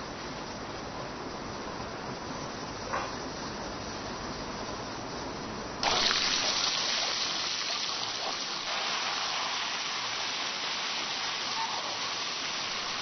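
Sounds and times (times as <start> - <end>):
tofu sizzling in hot oil: 5.8 - 13.0.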